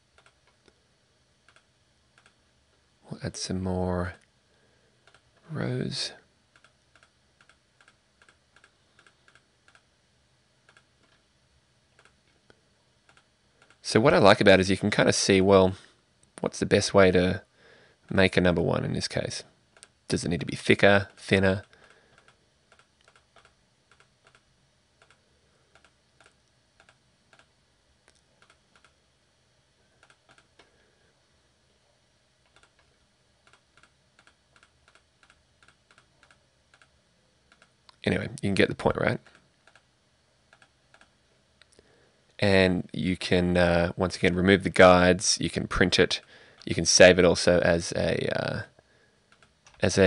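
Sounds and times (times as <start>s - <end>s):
computer mouse clicking: 0.1s - 0.8s, 1.4s - 2.4s, 5.0s - 5.3s, 6.5s - 9.9s, 10.7s - 11.2s, 12.0s - 12.3s, 13.1s - 13.8s, 21.6s - 24.4s, 25.0s - 27.5s, 28.1s - 29.0s, 30.0s - 30.7s, 32.4s - 38.0s, 39.2s - 39.9s, 40.5s - 41.1s, 49.3s - 49.8s.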